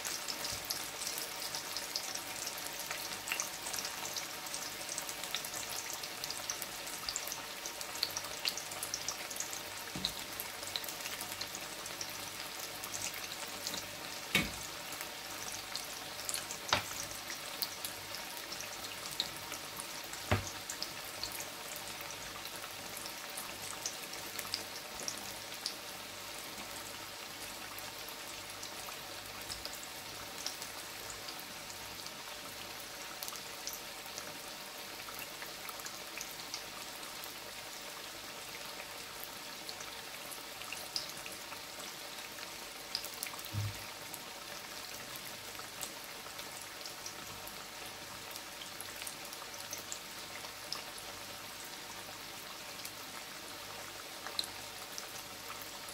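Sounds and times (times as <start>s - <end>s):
deep-frying sizzle with pops: 0.0s - 55.9s
low thump: 20.3s - 20.6s.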